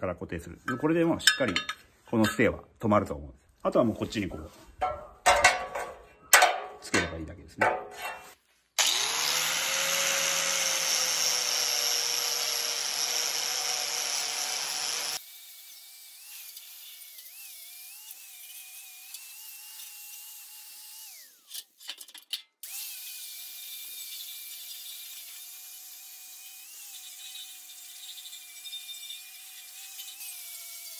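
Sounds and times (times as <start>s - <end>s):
angle grinder on steel: 8.0s - 21.8s, 22.6s - 30.9s.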